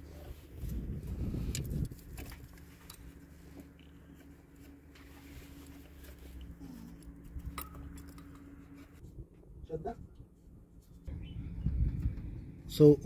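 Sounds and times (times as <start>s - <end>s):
rustling rumble: 0.0s - 13.0s
steady low hum: 0.0s - 13.0s
hands handling engine parts: 1.5s - 9.0s.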